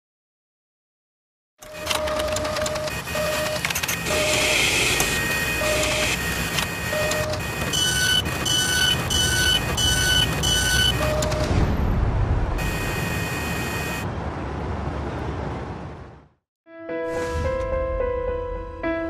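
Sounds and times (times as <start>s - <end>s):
mechanical whirr: 1.6s - 11.7s
short electronic beeps: 2.8s - 11.6s
two-tone beep: 6.8s - 11.5s.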